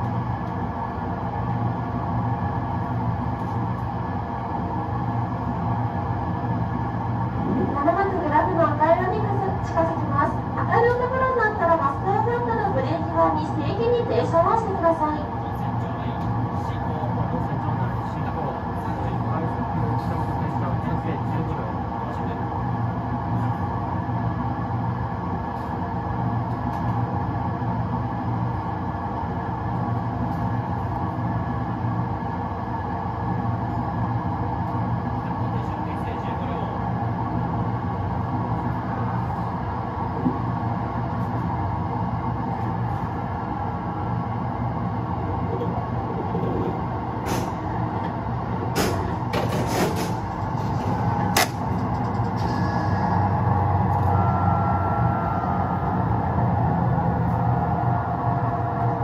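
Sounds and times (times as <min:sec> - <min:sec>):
electric train rumble: 0:00.0 - 0:59.0
rail noise: 0:00.0 - 0:59.0.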